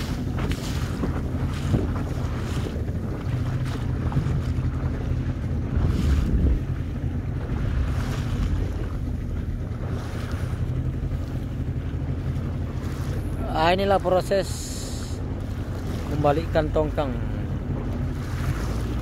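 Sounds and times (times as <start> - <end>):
wind gusting on microphone: 0.0 - 10.8
boat engine humming: 0.0 - 19.0.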